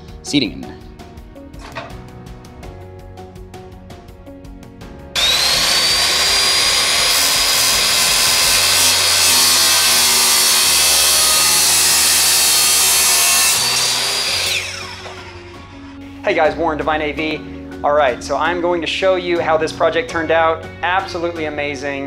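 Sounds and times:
saw grinding through metal: 5.2s - 16.0s.

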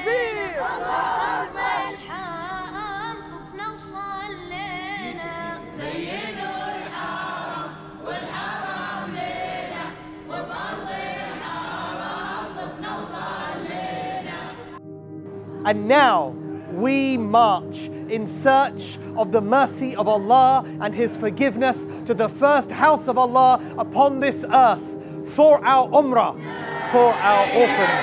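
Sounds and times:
person singing ornamented melody: 0.0s - 1.0s.

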